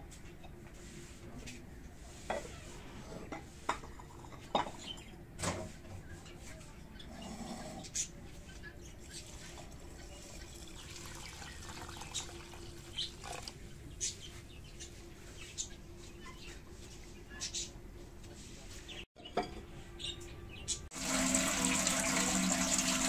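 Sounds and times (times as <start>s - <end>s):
water poured from jug into pot: 9.4s - 13.6s, 20.9s - 23.0s.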